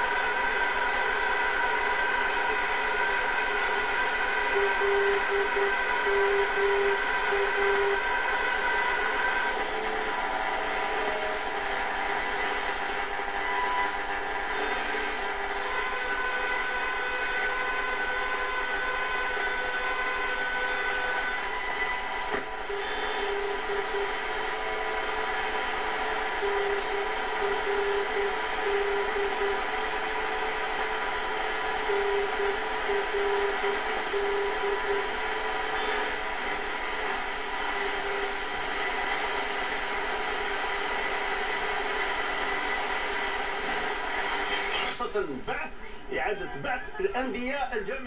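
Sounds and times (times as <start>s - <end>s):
radio static hiss: 0.0s - 48.0s
morse code tone: 4.2s - 30.6s, 31.5s - 36.8s
heterodyne whistles: 4.3s - 9.9s, 26.4s - 29.7s, 31.8s - 35.1s.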